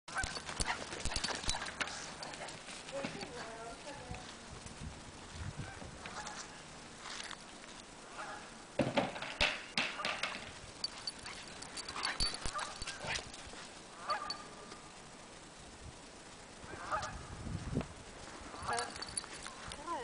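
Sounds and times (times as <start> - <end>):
dog galloping on grass: 0.1 - 4.4
geese honking: 8.1 - 8.5, 14.0 - 14.6, 16.7 - 17.2.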